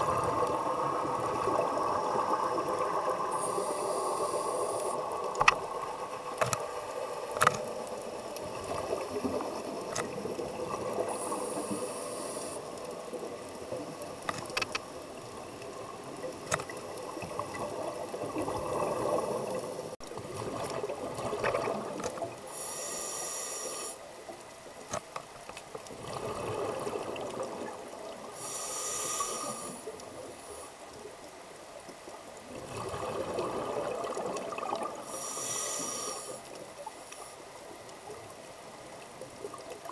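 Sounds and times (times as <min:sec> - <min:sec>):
exhaled bubbles rushing: 0:00.0 - 0:03.3, 0:32.5 - 0:35.0
regulator hiss: 0:01.3 - 0:05.3, 0:11.0 - 0:12.8, 0:22.4 - 0:24.0, 0:28.3 - 0:30.8, 0:35.0 - 0:37.5.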